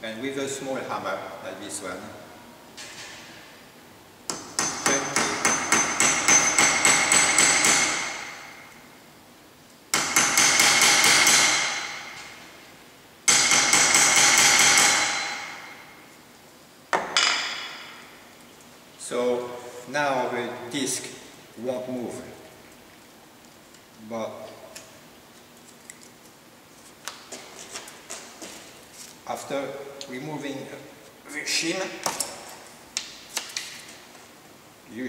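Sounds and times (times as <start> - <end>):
hammer tapping on metal: 4.3 - 8.2.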